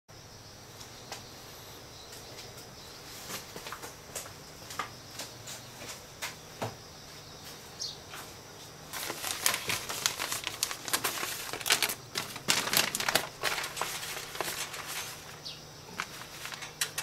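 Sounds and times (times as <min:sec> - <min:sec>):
paper rustling and crackling: 0:08.9 - 0:17.0.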